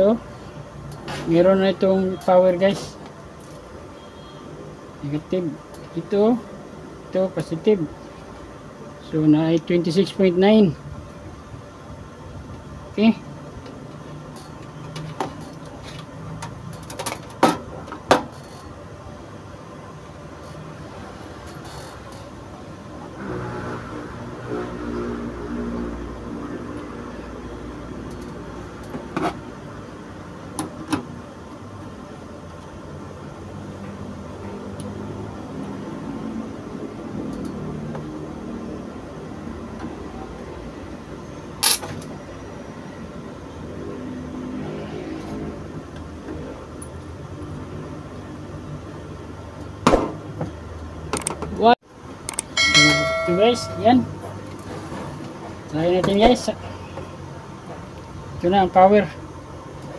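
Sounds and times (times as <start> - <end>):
low steady hum: 52.6 - 54.6.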